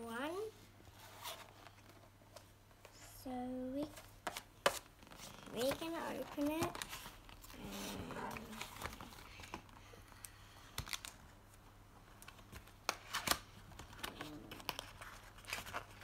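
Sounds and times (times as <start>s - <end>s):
packaging crinkling and tearing: 4.8s - 11.3s, 12.2s - 16.0s.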